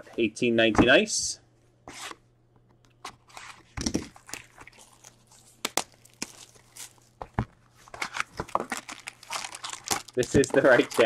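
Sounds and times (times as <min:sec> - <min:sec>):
shrink wrap crinkling: 0:03.3 - 0:11.0.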